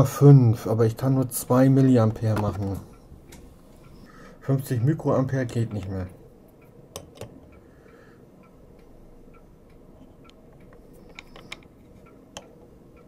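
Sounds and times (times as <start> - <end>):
faint steady hum: 0.0 - 13.0
small clicks and ticks: 5.7 - 13.0.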